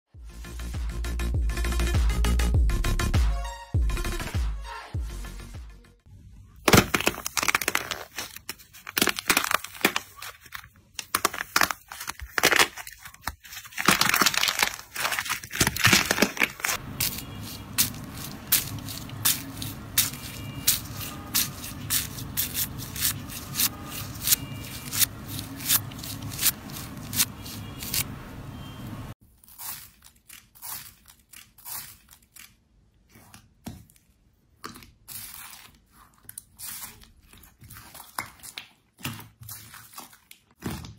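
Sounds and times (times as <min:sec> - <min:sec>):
crunchy clicks of foam beads: 0:06.6 - 0:28.0
slime crackling and popping: 0:06.7 - 0:10.2, 0:11.0 - 0:28.0.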